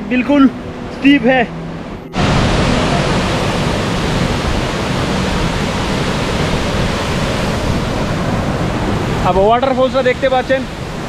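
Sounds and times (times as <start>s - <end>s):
waterfall pouring: 2.2s - 10.6s.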